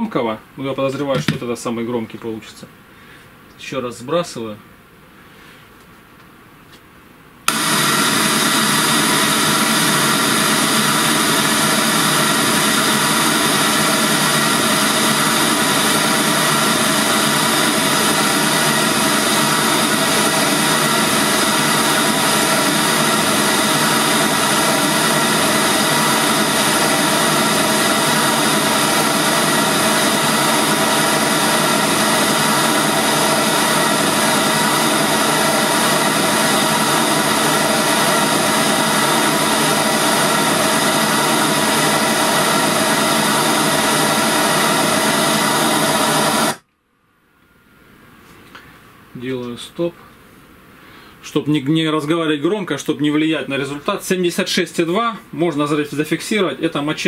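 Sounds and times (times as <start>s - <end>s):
speaker playing test noise hiss: 0.0s - 42.0s.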